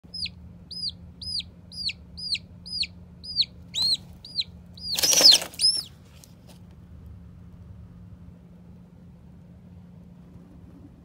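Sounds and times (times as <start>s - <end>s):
chick peeping shrilly: 0.0s - 6.0s
chick shrieking: 0.1s - 5.9s
wings flapping: 4.8s - 5.9s.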